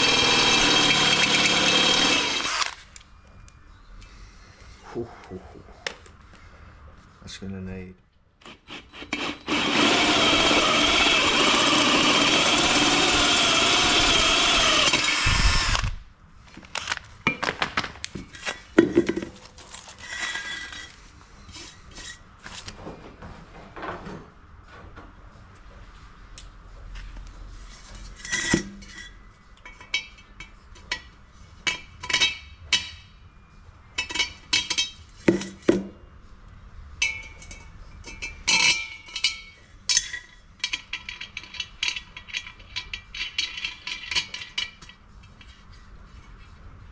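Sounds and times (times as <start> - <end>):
cordless drill boring through metal: 0.0 - 2.8, 8.7 - 16.0
metal clinks and knocks: 26.3 - 26.8, 37.0 - 45.6.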